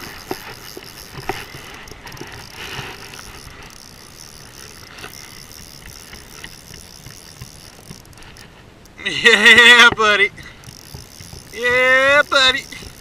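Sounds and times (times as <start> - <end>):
fishing reel ratchet buzzing: 0.0 - 13.0.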